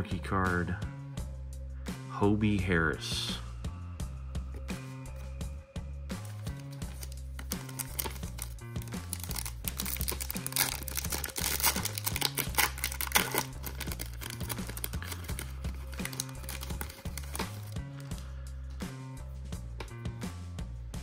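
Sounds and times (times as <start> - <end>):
background music with bass line: 0.0 - 21.0
foil pack tearing and crinkling: 6.3 - 17.8.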